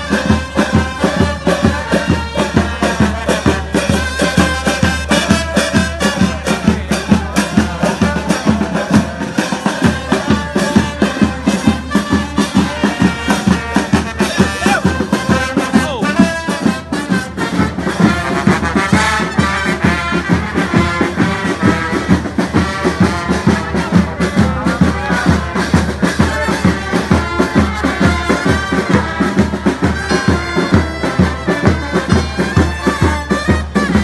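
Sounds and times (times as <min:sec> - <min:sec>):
brass band playing march: 0:00.0 - 0:34.0.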